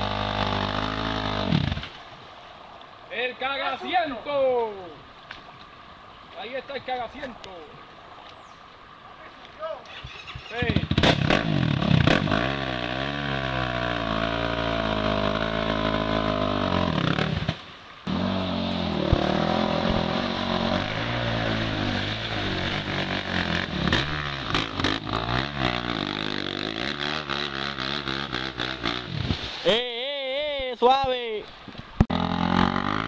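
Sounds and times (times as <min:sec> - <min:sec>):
quad engine revving: 0:00.0 - 0:01.9, 0:09.9 - 0:29.2, 0:32.1 - 0:33.0.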